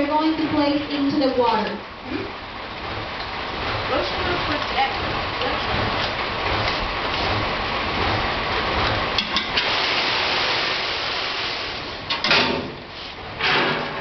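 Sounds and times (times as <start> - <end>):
water rushing: 0.0 - 12.8
metal cart emptying into water: 13.4 - 14.0.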